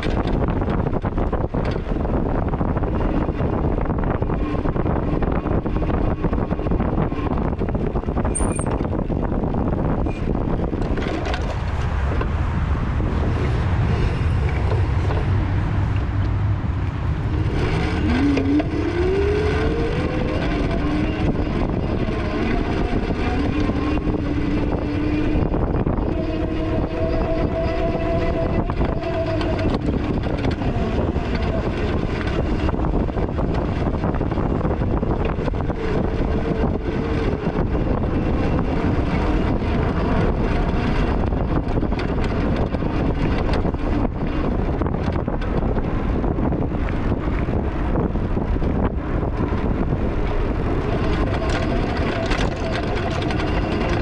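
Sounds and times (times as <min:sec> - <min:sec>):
vehicle engine revving: 0:11.0 - 0:54.0.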